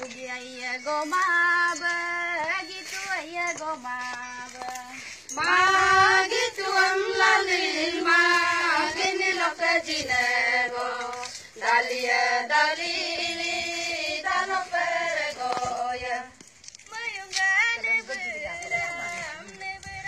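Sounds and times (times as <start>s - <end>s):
women and children singing: 0.0s - 20.0s.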